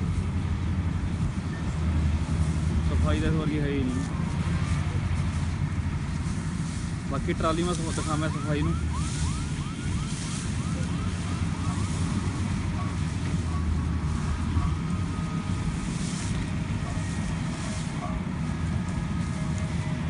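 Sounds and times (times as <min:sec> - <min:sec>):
combine harvester engine running: 0:00.0 - 0:20.0.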